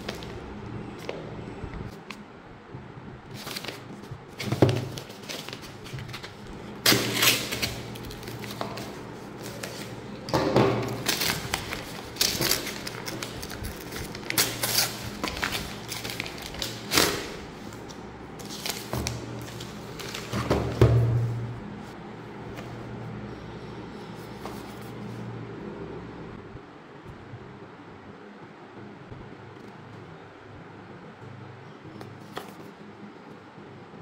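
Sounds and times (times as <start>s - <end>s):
packaging rustling and crinkling: 3.4s - 10.0s, 10.7s - 20.8s.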